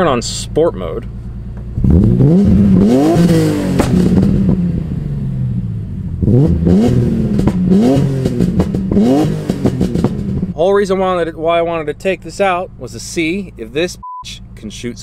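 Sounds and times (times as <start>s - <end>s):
sharp exhaust cracks: 0.3s - 5.0s, 6.1s - 10.6s
car engine accelerating: 0.7s - 10.6s.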